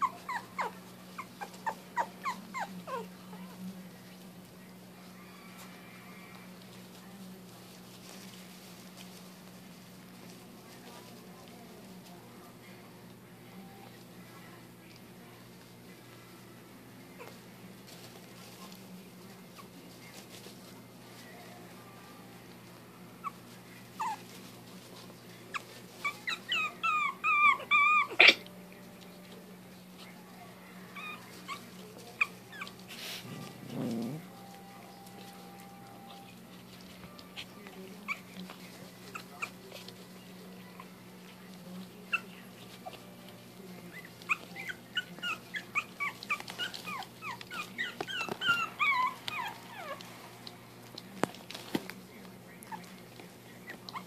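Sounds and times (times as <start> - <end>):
puppy whimpering and yipping: 0.0 - 3.5, 23.2 - 24.4, 25.5 - 28.5, 30.9 - 36.4, 37.3 - 38.4, 39.1 - 39.9, 42.1 - 43.1, 43.8 - 50.1, 53.6 - 54.0.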